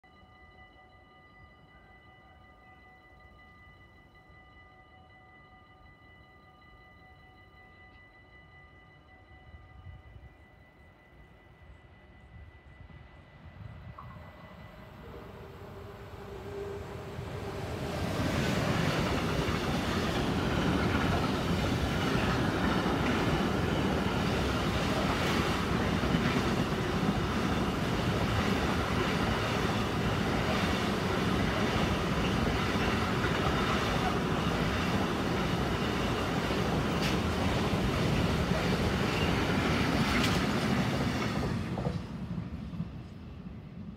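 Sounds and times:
train wheels rumbling on rails: 0:13.6 - 0:43.9
wheels clacking: 0:17.7 - 0:42.0.

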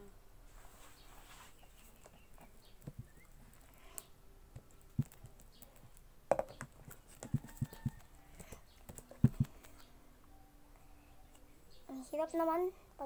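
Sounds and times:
knocks on tabletop: 0:06.3 - 0:07.9.

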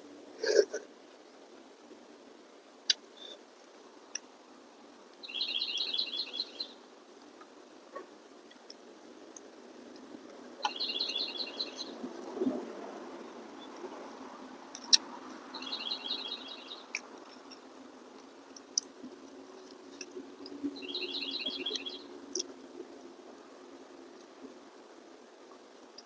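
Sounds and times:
songbird trilling: 0:05.2 - 0:06.8, 0:10.6 - 0:12.0, 0:14.8 - 0:17.6, 0:20.8 - 0:22.5.

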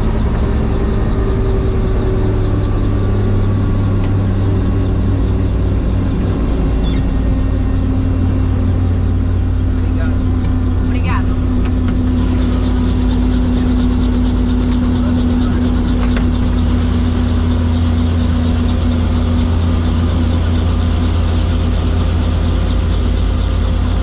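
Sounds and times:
helicopter engine and rotor: 0:00.0 - 0:24.0.

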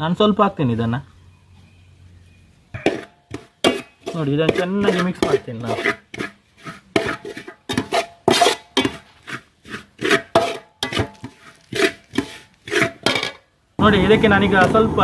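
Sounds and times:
metal spoon stirring in pot: 0:02.8 - 0:13.4.

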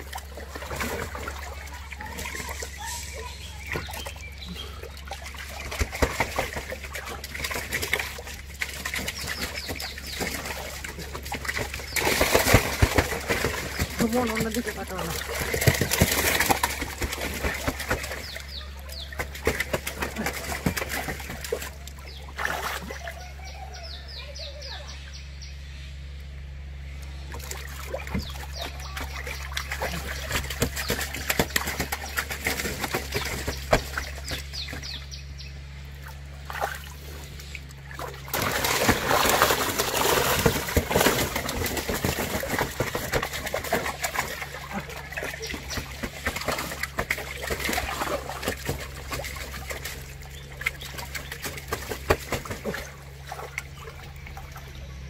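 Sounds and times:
river water splashing: 0:00.0 - 0:24.7, 0:27.3 - 0:55.0
steady low hum: 0:00.0 - 0:55.0.

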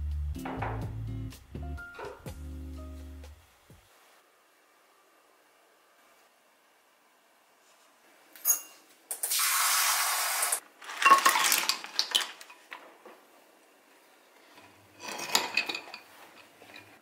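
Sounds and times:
metal spoon clinking on ceramic bowl: 0:08.4 - 0:08.8.

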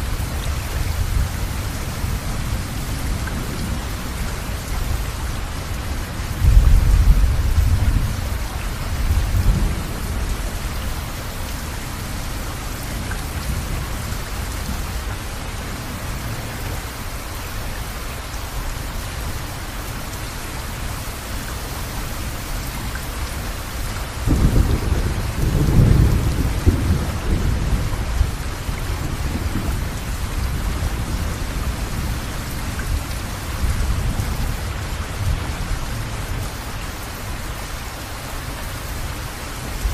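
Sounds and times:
low thunder rumbling: 0:00.0 - 0:15.0, 0:24.1 - 0:36.5
steady rain: 0:00.0 - 0:39.9.

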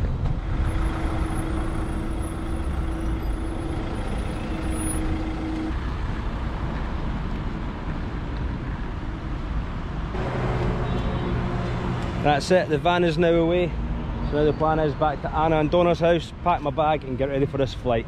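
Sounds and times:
engine and road noise inside vehicle: 0:00.0 - 0:12.8
steady tone: 0:00.4 - 0:05.9.

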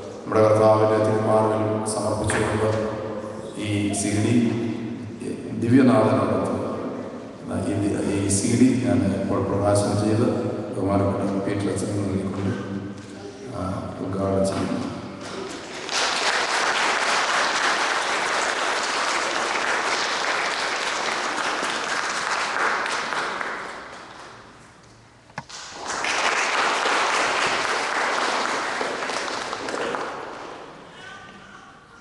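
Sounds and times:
audience applauding: 0:15.2 - 0:24.4, 0:25.5 - 0:30.9.

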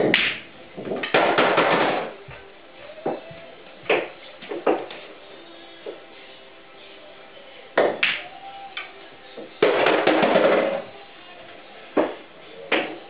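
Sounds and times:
pool balls clacking: 0:00.0 - 0:05.2, 0:07.7 - 0:13.0
faint music: 0:00.0 - 0:13.0.

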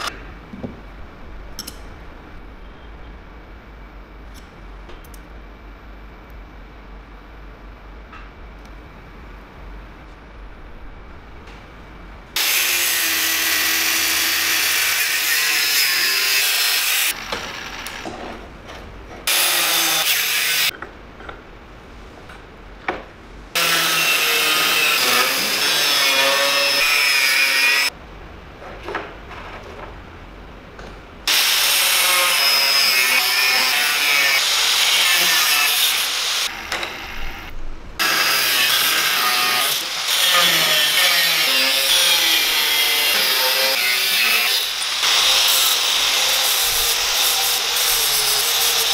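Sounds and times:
power tool running: 0:12.4 - 0:18.3.

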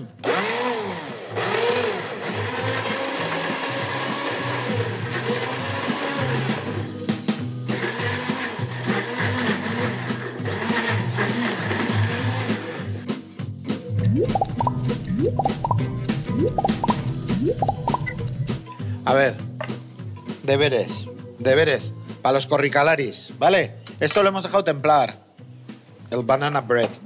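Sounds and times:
blender running: 0:00.2 - 0:04.7
background music: 0:14.0 - 0:18.6.

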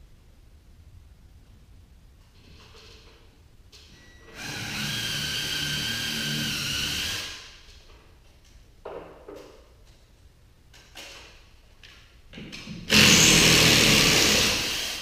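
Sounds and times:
power drill running: 0:04.3 - 0:07.5, 0:12.9 - 0:15.0.

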